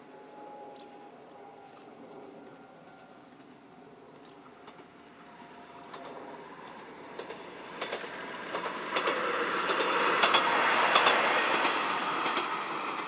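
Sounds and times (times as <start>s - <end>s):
diesel railcar running past: 0.0s - 13.0s
wheels clicking over rail joints: 3.3s - 5.0s, 5.8s - 13.0s.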